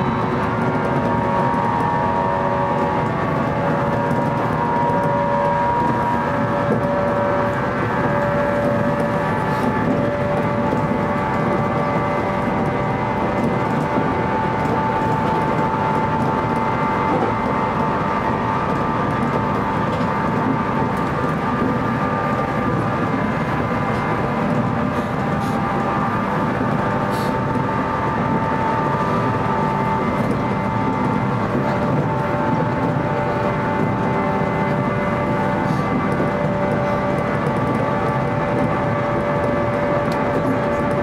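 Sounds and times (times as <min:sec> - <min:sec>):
train motor whine: 0:00.0 - 0:41.0
train wheels rumbling on rails: 0:00.0 - 0:41.0.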